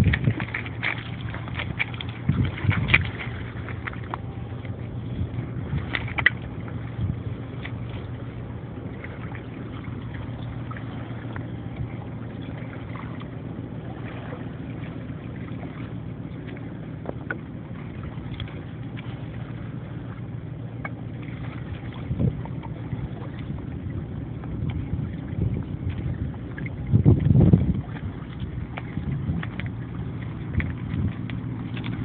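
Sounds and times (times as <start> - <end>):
river water lapping on stones: 0.0 - 4.7, 5.6 - 20.2, 24.5 - 32.0
low rumble: 0.0 - 32.0.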